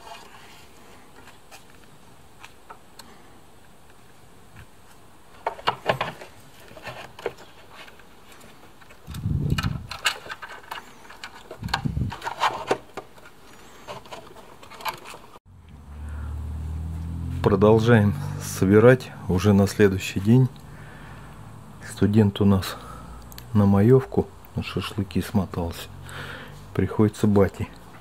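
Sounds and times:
clicks and rattles of parts handled: 5.4 - 15.4
steady low hum: 15.5 - 24.7.

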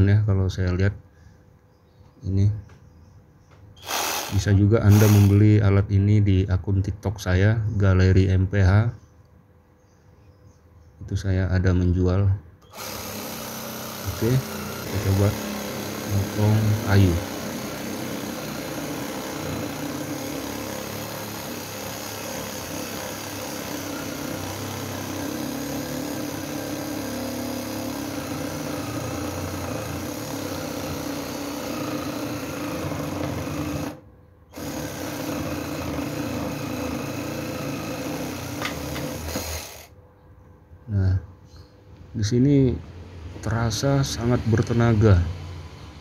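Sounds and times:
reciprocating saw cutting wood: 3.8 - 5.4, 12.7 - 34.0, 34.6 - 39.9.

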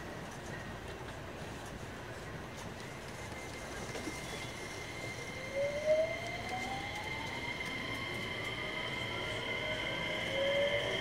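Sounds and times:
electric train motor whine: 4.3 - 11.0.

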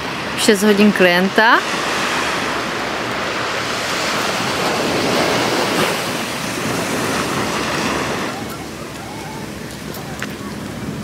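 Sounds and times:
small waves washing on beach: 0.0 - 11.0
wind on microphone: 0.0 - 11.0.

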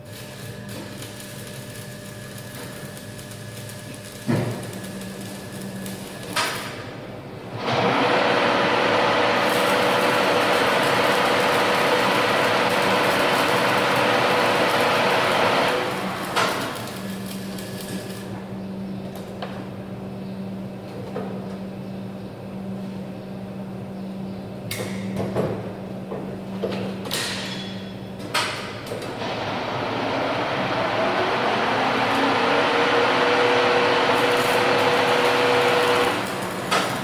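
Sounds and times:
arc welding crackling sizzle: 0.0 - 18.5, 29.7 - 37.0
machine hum: 0.0 - 24.5, 29.1 - 37.0.

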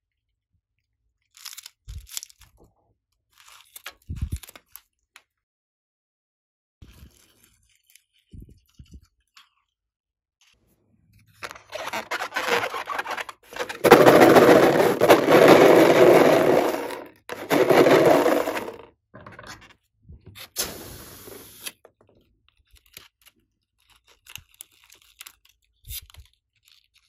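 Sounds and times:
hands rubbing latex balloon: 11.4 - 18.8.

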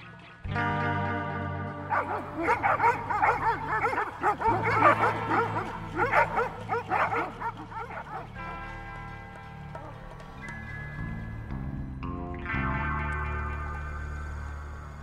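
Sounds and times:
background music: 0.0 - 15.0
dogs barking: 1.9 - 11.2.

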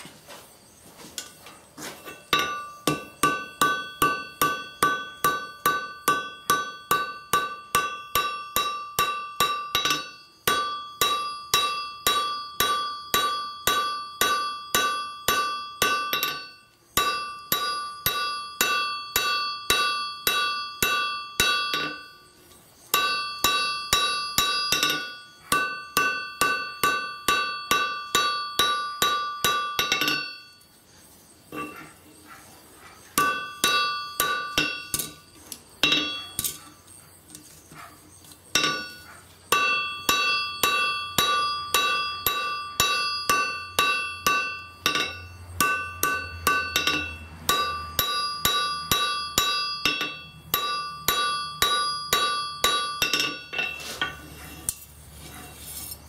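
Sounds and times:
hammer striking on anvil: 2.1 - 22.3, 22.9 - 30.6, 33.2 - 36.7, 38.6 - 54.9.

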